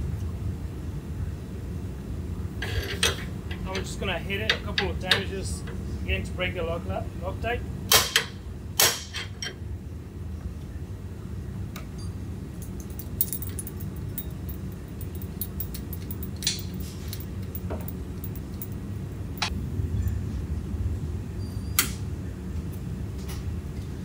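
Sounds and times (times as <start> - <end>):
low shop hum: 0.0 - 24.0
metal tools clinking: 2.6 - 5.7, 12.6 - 19.5.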